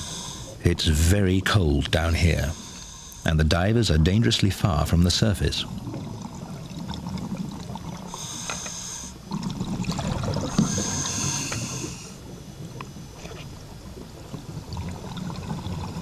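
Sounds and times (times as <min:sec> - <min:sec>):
diver breathing through regulator: 0:00.0 - 0:00.6, 0:02.4 - 0:03.3, 0:08.1 - 0:09.2, 0:10.4 - 0:12.2.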